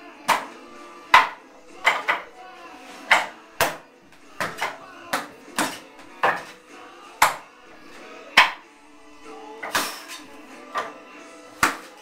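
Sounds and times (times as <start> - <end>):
hands striking wooden dummy: 0.3 - 2.3, 3.1 - 3.8, 4.4 - 6.6, 7.2 - 7.5, 8.4 - 8.6, 11.6 - 12.0.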